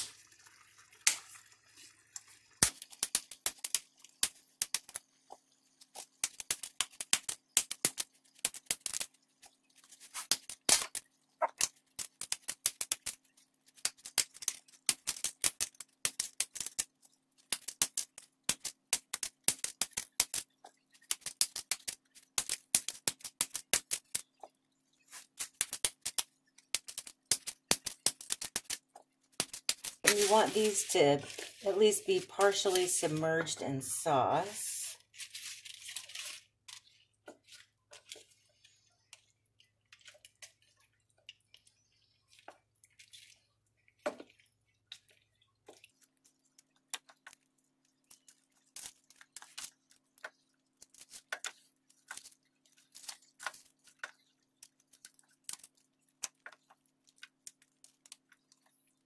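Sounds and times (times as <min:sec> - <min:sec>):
dry noodles snapping: 0:02.6 - 0:05.0, 0:05.9 - 0:09.2, 0:10.0 - 0:24.2, 0:25.1 - 0:31.6, 0:48.1 - 0:58.4.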